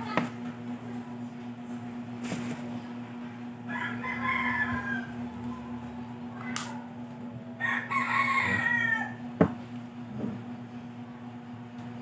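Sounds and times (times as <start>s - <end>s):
rooster crowing: 3.6s - 6.0s, 7.4s - 9.4s.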